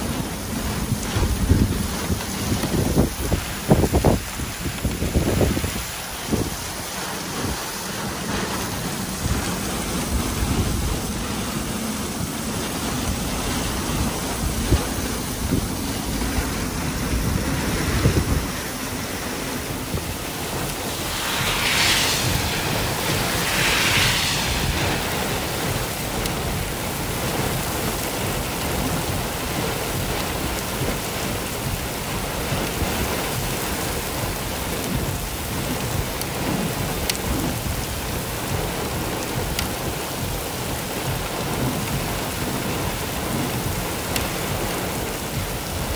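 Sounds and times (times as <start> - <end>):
cars passing on wet road: 0.0 - 45.9
heavy rain on road: 0.0 - 45.9.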